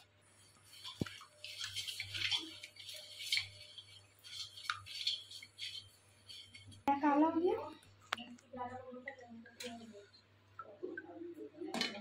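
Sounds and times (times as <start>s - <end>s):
water sloshing in a steel bowl: 0.0s - 12.0s.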